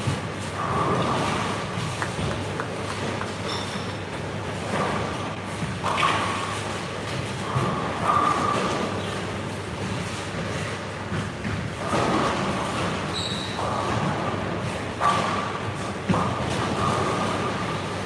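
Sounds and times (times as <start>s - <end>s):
bowling balls rolling: 0.1s - 9.0s.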